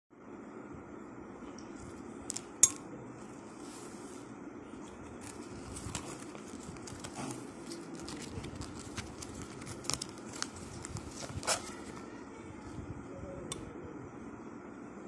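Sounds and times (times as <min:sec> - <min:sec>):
paper leaflet rustling: 0:04.8 - 0:12.2.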